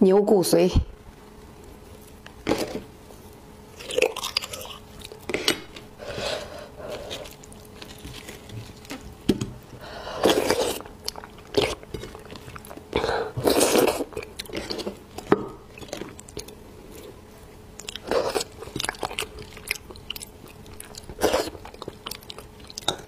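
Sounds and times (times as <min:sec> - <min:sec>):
mouth eating noises: 0:10.1 - 0:17.2, 0:17.8 - 0:23.0.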